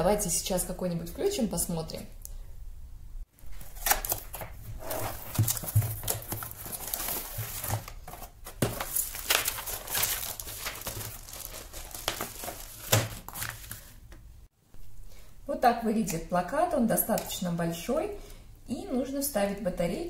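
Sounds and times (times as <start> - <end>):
cardboard and paper crinkling: 3.4 - 14.1.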